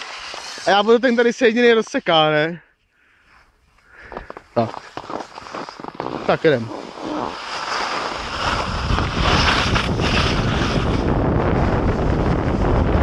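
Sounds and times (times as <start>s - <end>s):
skis scraping on snow: 0.0s - 2.4s, 4.0s - 13.0s
wind buffeting microphone: 8.1s - 13.0s.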